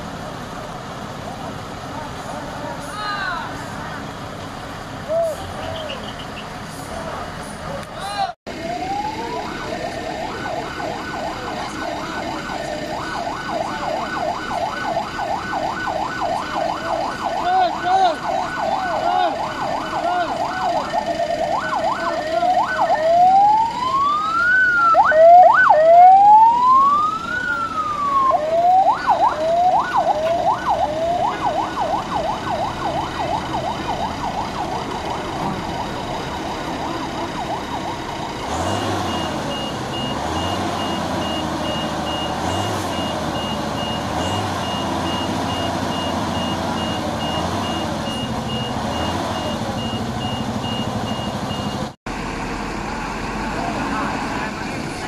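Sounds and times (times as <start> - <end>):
police siren yelp and wail: 8.1 - 51.3.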